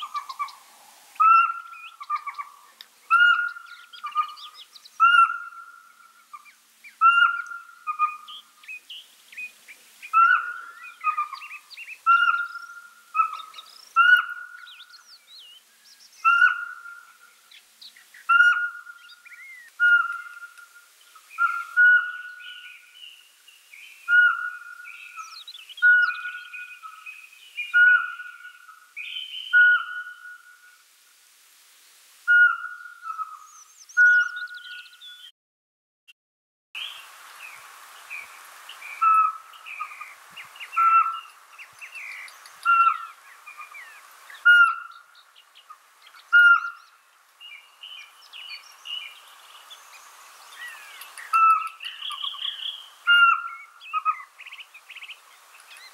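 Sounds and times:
owl whistled hoots: 0:07.0 - 0:08.3, 0:12.1 - 0:14.6, 0:16.2 - 0:17.0, 0:18.3 - 0:18.9, 0:19.8 - 0:20.6, 0:21.4 - 0:22.7, 0:24.1 - 0:27.0, 0:27.6 - 0:30.8, 0:32.3 - 0:34.8, 0:40.8 - 0:41.3, 0:42.6 - 0:43.8, 0:44.4 - 0:45.0, 0:46.3 - 0:46.8, 0:50.7 - 0:54.3.

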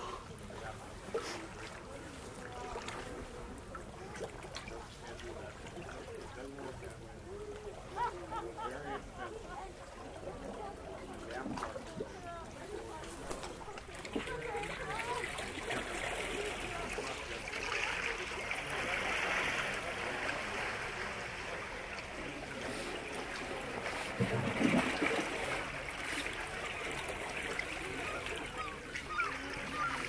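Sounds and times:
waves splashing against rocks: 0:10.7 - 0:30.0.

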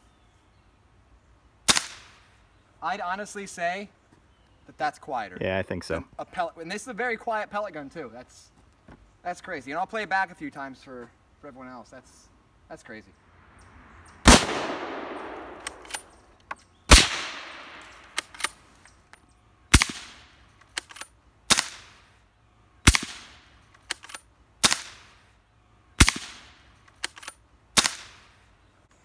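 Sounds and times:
suppressed rifle shots: 0:01.7 - 0:02.2, 0:14.2 - 0:18.6, 0:19.7 - 0:22.0, 0:22.8 - 0:25.2, 0:26.0 - 0:28.4.

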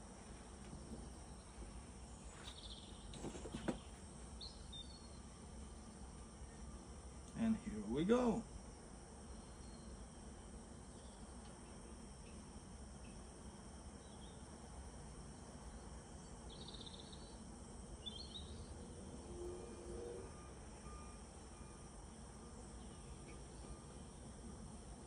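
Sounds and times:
low hum: 0:16.3 - 0:25.0.

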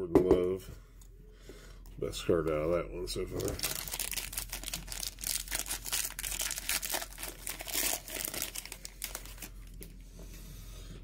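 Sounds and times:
cellophane tearing and crinkling: 0:03.3 - 0:10.0.

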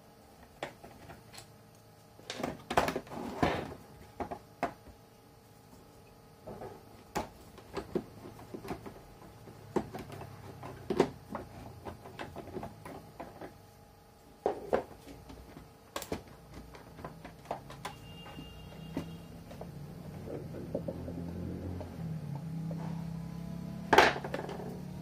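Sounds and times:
plastic parts clicking and knocking: 0:02.2 - 0:04.9, 0:06.4 - 0:13.6, 0:14.4 - 0:21.1.

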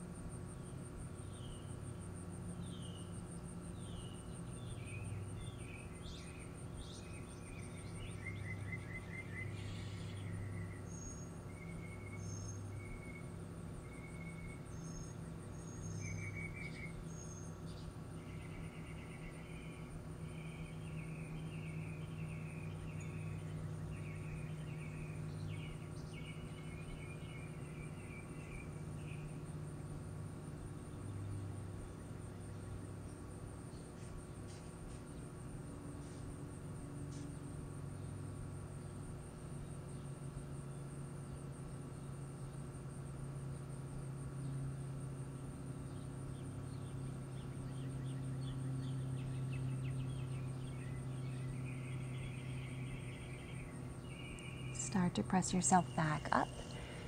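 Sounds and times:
insect trill: 0:00.0 - 0:57.0
small birds chirping: 0:00.5 - 0:43.0, 0:45.6 - 0:57.0
low hum: 0:44.4 - 0:57.0.

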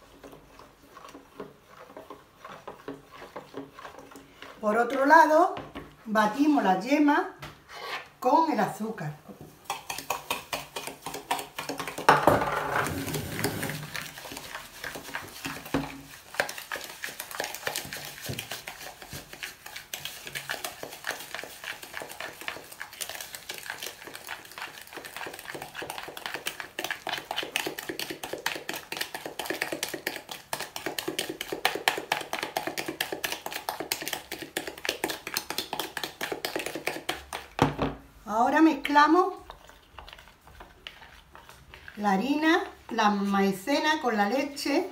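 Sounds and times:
spoon beating in plastic bowl: 0:09.6 - 0:14.4, 0:27.4 - 0:38.0.

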